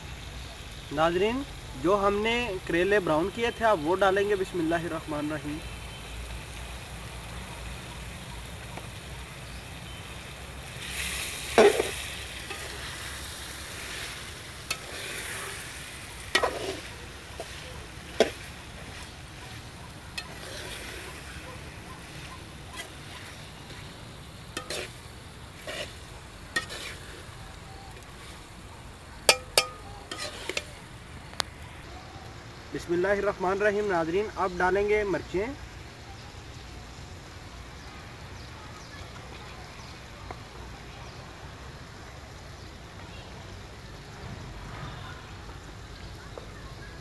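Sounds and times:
frying sizzle: 0.0 - 47.0
ladle scraping metal pan: 10.8 - 21.4, 22.0 - 23.8, 24.6 - 25.0, 25.6 - 27.3, 29.3 - 30.8
ladle clinking against pan: 29.3 - 30.7.

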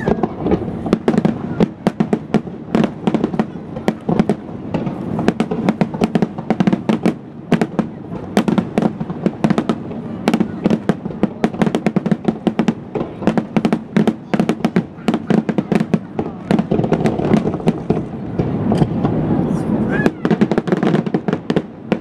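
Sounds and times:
continuous rumble: 0.0 - 22.0
firework shells bursting: 0.0 - 22.0.

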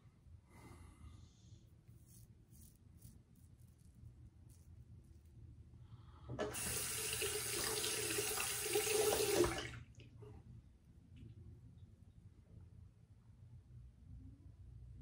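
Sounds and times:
sink tap running: 6.4 - 9.7.

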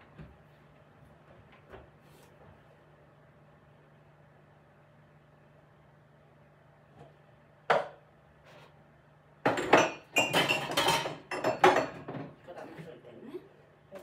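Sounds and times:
cups and dishes clattering: 9.4 - 12.4.

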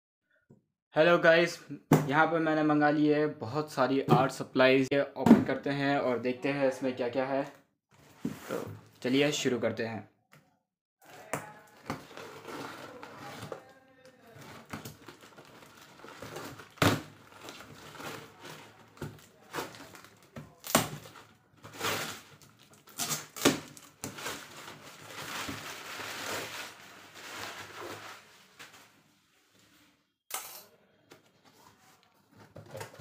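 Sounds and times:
tape and cardboard rustling: 11.0 - 29.0
box cutter slitting packing tape: 22.9 - 23.8.

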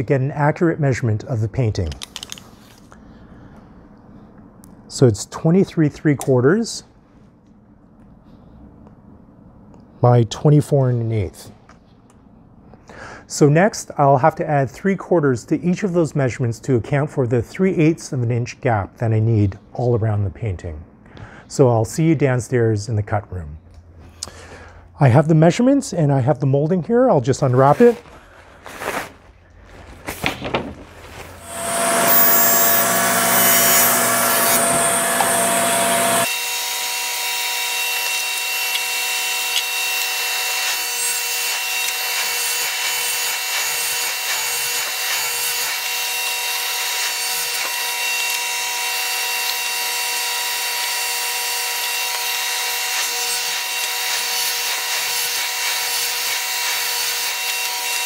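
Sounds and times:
paper wrapping rustling: 27.5 - 31.4
machine whine and hiss: 31.4 - 36.7.

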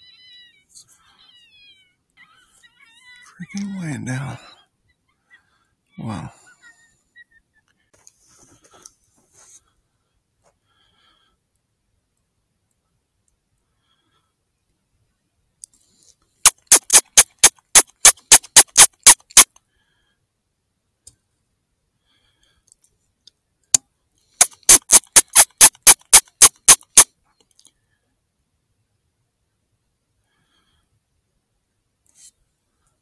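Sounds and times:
sharp mechanical clicks: 16.5 - 19.5, 24.4 - 27.1.

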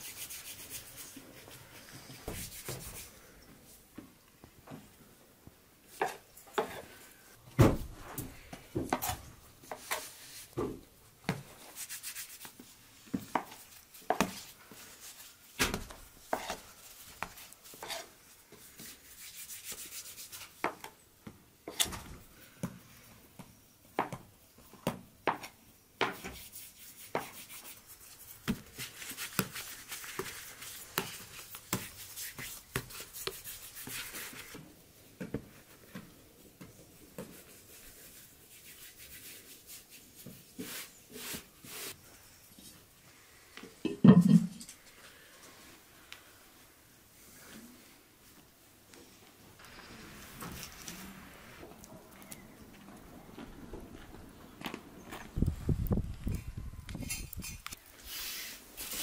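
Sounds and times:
floured hands rubbing dough: 0.0 - 3.3, 11.3 - 15.6, 16.2 - 20.6, 26.1 - 34.7, 35.4 - 42.0.

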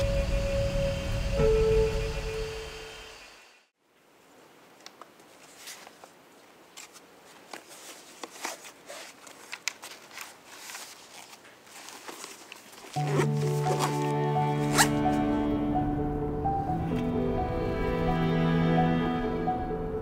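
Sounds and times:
music with sustained tones: 0.0 - 3.7, 13.0 - 20.0.

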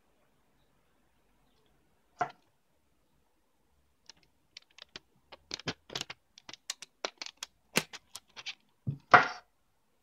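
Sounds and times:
plastic tape crinkling: 4.0 - 8.8.

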